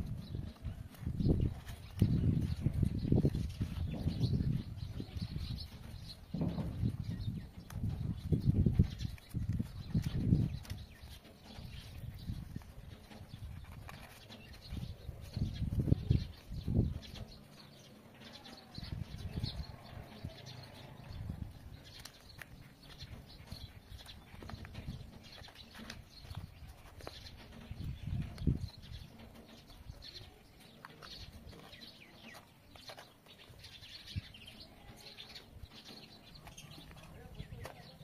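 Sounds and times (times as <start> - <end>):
low-pitched thumps: 1.2 - 10.6
stiff paper rustling and creasing: 11.7 - 16.6.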